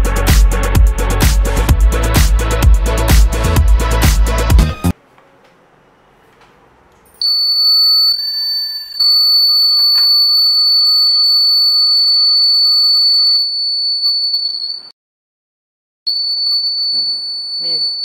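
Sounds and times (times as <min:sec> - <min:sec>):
piezo alarm buzzer tone: 0:07.2 - 0:14.8.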